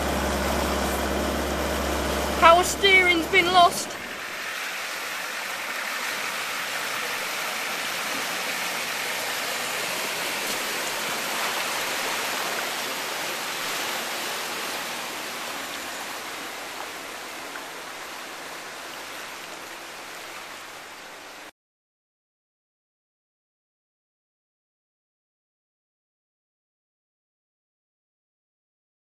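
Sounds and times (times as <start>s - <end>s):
floodwater rushing and splashing: 0.0s - 21.5s.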